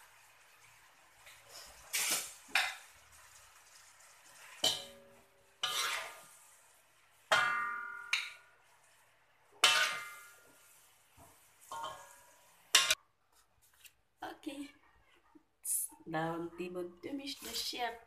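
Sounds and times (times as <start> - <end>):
ladle scraping a metal wok: 5.6 - 6.4, 9.6 - 10.7, 11.6 - 13.0.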